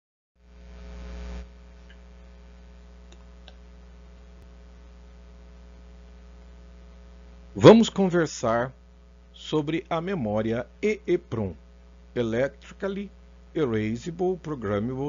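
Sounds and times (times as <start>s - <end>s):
electrical mains hum: 0.4s - 15.0s
faint hiss: 6.6s - 15.0s.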